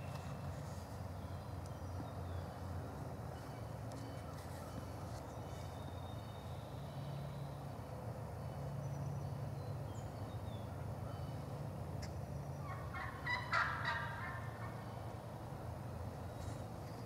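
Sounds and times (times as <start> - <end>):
turkey gobbling: 12.0 - 14.8.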